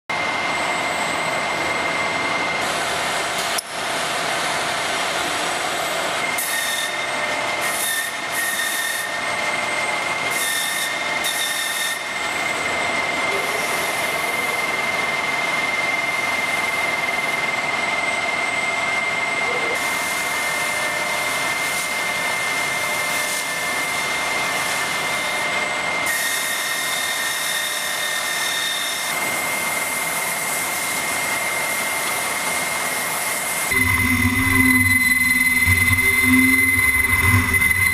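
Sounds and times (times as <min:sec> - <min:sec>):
grinding machines whining: 0:33.6 - 0:37.9.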